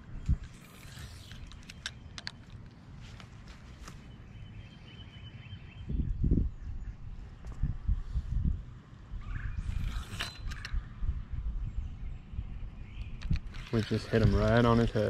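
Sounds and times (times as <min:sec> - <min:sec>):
fishing line whirring off reel: 0:00.4 - 0:02.4, 0:09.4 - 0:10.9
fishing reel clicks: 0:00.4 - 0:02.4, 0:09.7 - 0:10.8.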